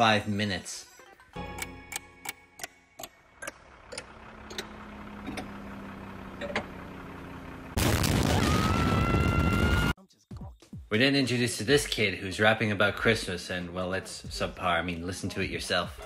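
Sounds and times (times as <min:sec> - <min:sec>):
cartoon explosion: 0:07.8 - 0:10.0.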